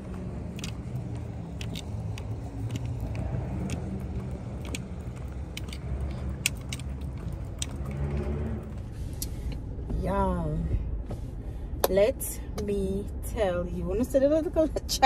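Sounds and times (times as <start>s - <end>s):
keys jingling: 0.0s - 8.8s
car traffic rumble: 0.0s - 15.0s.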